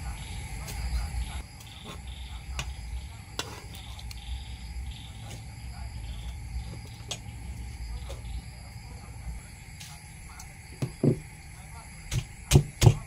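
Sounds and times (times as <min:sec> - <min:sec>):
crickets chirping: 0:00.0 - 0:13.0
pestle pounding in a mortar: 0:12.1 - 0:13.0.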